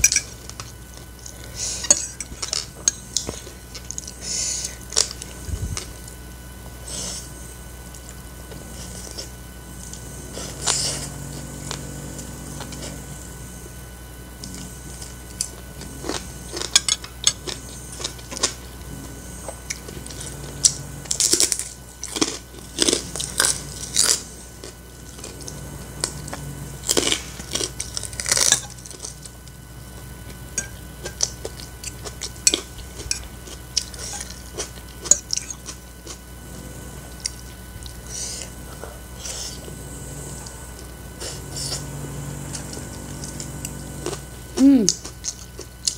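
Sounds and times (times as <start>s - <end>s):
person chewing noodles: 0.0s - 13.8s, 14.4s - 45.9s
sharp crunches of chilies: 19.7s - 29.5s.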